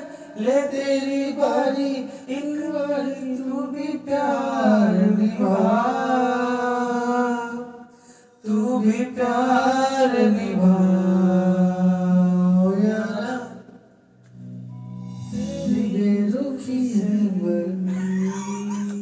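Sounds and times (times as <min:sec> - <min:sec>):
men singing unaccompanied: 0:00.0 - 0:07.7, 0:08.4 - 0:13.6.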